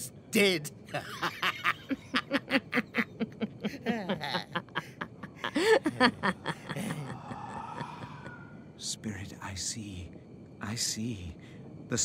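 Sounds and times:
cackling laughter: 1.0s - 8.4s.

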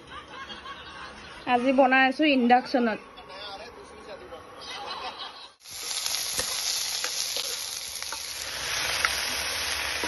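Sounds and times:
meat and potatoes sizzling in oil: 5.6s - 10.0s.

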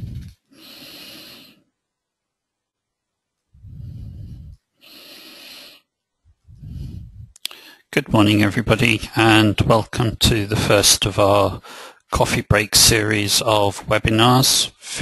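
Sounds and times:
breath blowing on microphone: 0.0s - 1.5s, 3.6s - 5.8s, 6.4s - 7.8s
person breathing into microphone: 0.0s - 1.6s, 3.6s - 7.9s, 11.6s - 12.0s.

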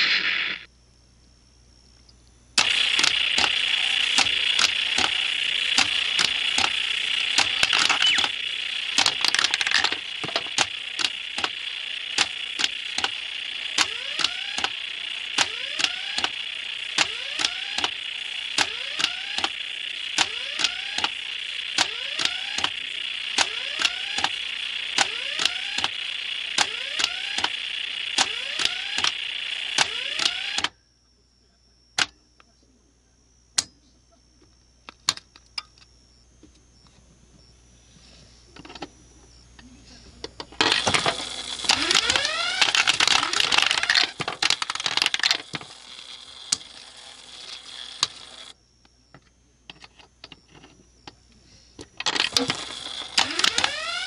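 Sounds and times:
sharp clicks: 2.0s - 30.7s, 40.2s - 49.0s, 51.8s - 54.0s.

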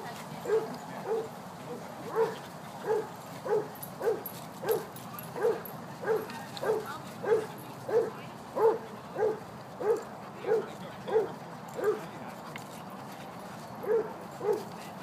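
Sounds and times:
dog barking: 0.5s - 1.3s, 2.1s - 12.1s, 13.8s - 14.7s.

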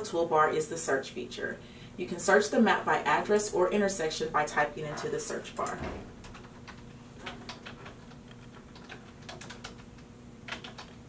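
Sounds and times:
computer keyboard typing: 4.9s - 11.0s.

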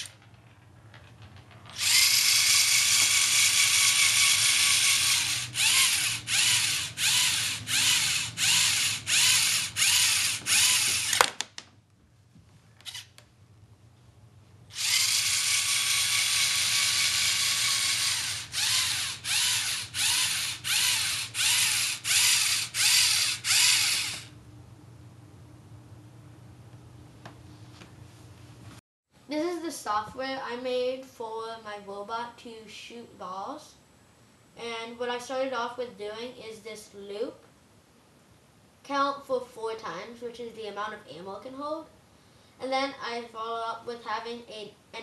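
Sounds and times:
toy robot motors whirring: 1.7s - 11.3s, 12.8s - 13.1s, 14.7s - 24.3s.

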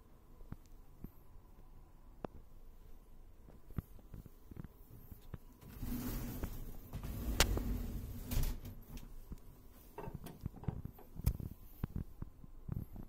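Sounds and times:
cupboard door scraping: 5.6s - 9.2s.

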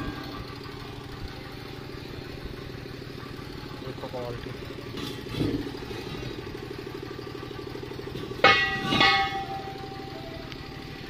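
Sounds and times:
engine idling: 0.0s - 11.0s
loud bell-like ring: 8.4s - 10.9s.

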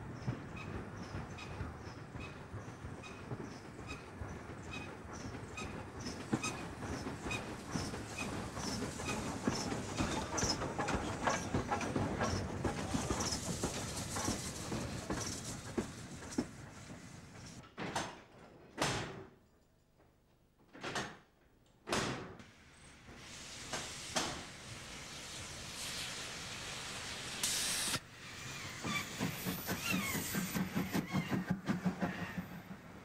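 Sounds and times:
train wheels rumbling on rails: 0.0s - 17.7s, 22.8s - 33.0s.

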